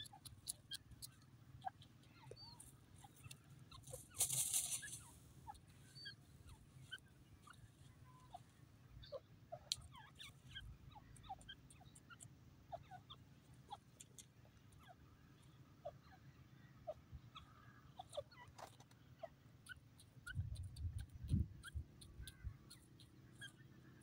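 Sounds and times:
bird chirps and clucks: 0.0s - 24.0s
scratchy rustle: 3.8s - 5.0s.

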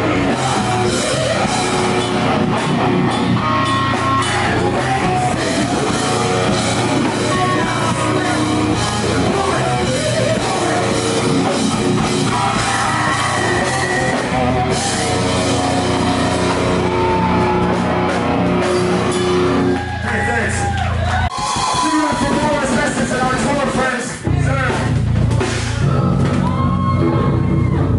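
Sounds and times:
person singing into a microphone: 0.0s - 2.2s, 3.4s - 15.2s
electric guitar: 0.0s - 22.5s, 24.2s - 27.9s
drum kit: 0.0s - 27.9s.

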